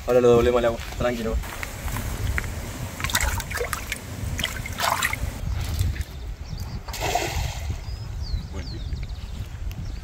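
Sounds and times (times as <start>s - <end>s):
steady low rumble: 1.4s - 6.5s
water splashing and trickling: 1.6s - 6.2s, 6.8s - 7.9s.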